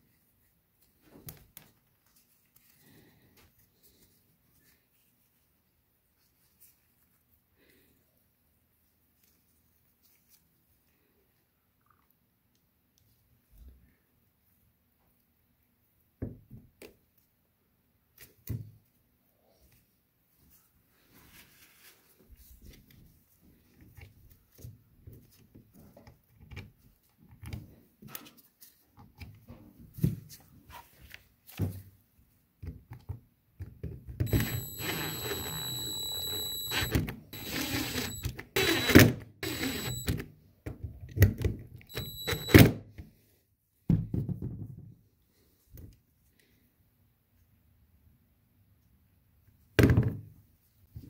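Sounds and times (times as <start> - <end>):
cordless drill whining: 34.2 - 40.2, 41.9 - 42.7.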